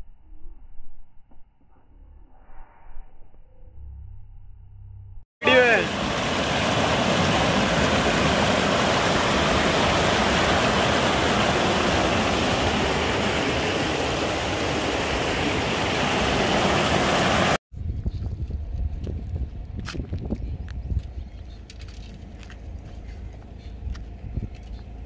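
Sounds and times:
river rapids rushing: 5.4s - 17.6s.

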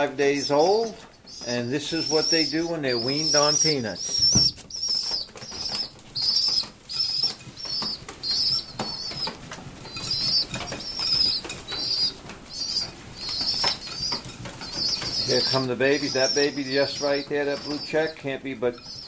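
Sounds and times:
young pigeons squeaking peeps: 0.0s - 19.0s
pigeons flapping wings: 3.0s - 18.2s.

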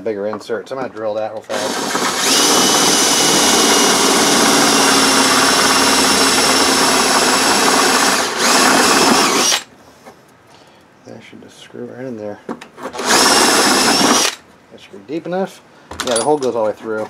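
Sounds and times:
cordless drill whining: 1.5s - 9.7s, 13.0s - 14.4s.

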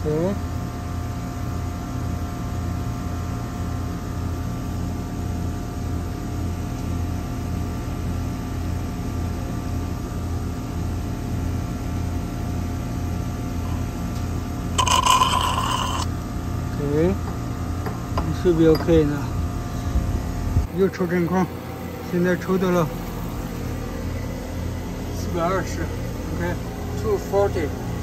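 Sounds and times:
vacuum pump pulsing hum: 0.0s - 28.0s
metallic scraping clink: 14.8s - 16.1s.

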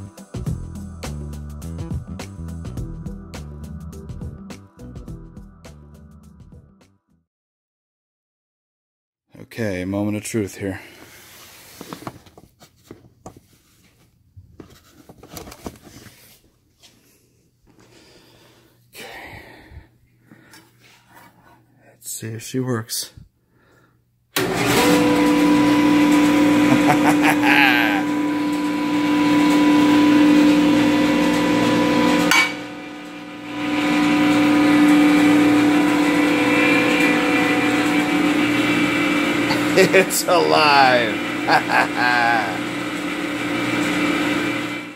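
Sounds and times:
jointer motor humming: 24.4s - 44.9s.

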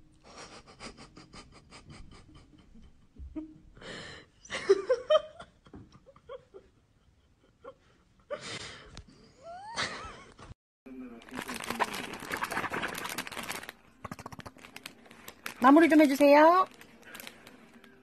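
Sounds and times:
breathy laughter: 0.2s - 10.5s.

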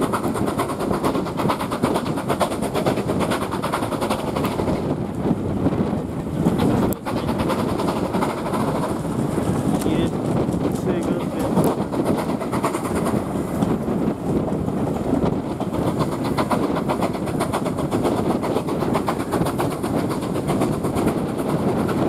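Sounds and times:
rushing air: 0.0s - 22.0s
train wheels on rail: 0.0s - 22.0s
steam engine beat: 7.0s - 9.1s.

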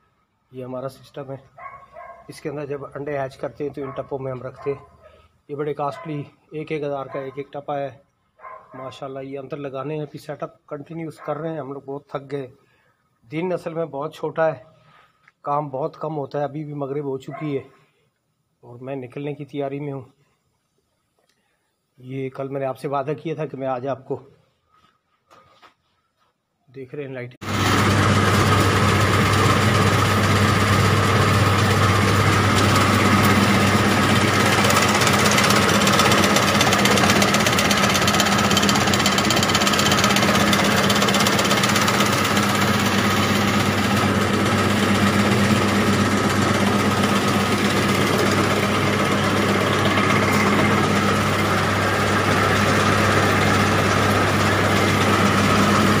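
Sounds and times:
machine motor humming: 27.4s - 56.0s.

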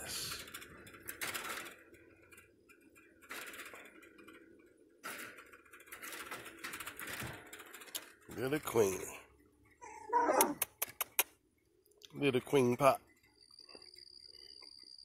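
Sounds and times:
chain-link fence rattling: 0.0s - 11.6s.

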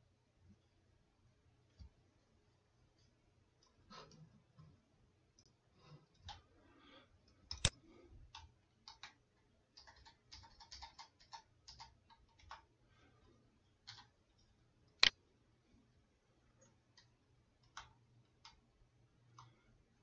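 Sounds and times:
computer keyboard typing: 8.3s - 12.7s, 13.8s - 15.1s, 16.9s - 18.6s.

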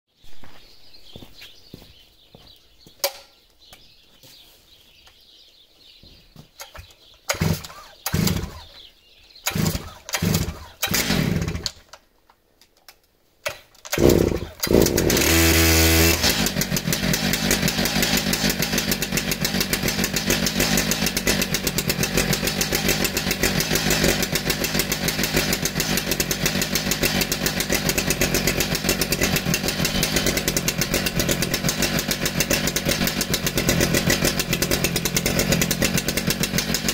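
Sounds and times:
chainsaw engine running: 6.8s - 11.8s, 13.9s - 36.9s
starter cord pulls: 13.4s - 36.9s.

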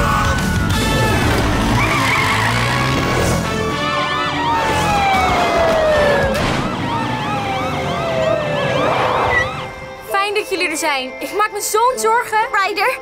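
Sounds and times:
cartoon sirens wailing: 0.1s - 10.0s.

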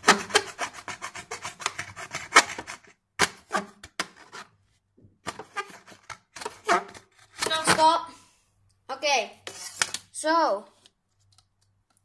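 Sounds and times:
knife rasping on plastic ruler: 0.0s - 4.5s.

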